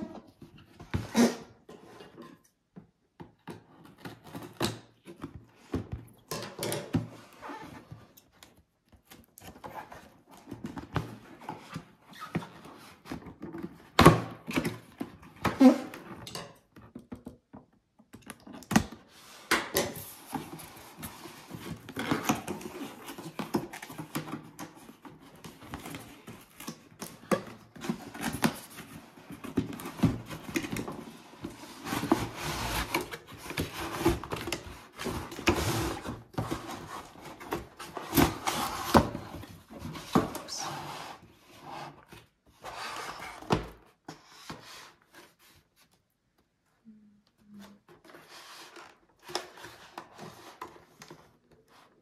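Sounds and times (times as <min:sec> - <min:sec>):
cardboard box rustling and scraping: 0:27.6 - 0:45.7.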